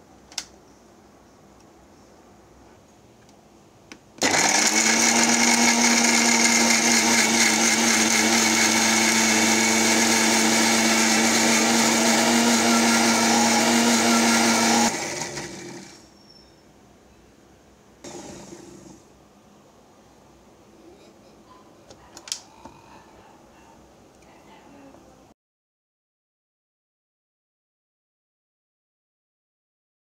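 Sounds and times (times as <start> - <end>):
mixer grinder motor whining: 4.2 - 16.0, 18.0 - 19.0.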